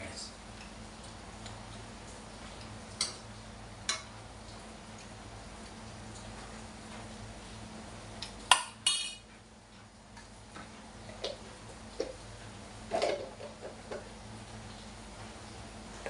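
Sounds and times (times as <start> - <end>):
low steady hum: 0.0 - 16.0
metal spoon clinking on cookware: 8.5 - 9.2
pots and utensils knocking: 8.5 - 9.2.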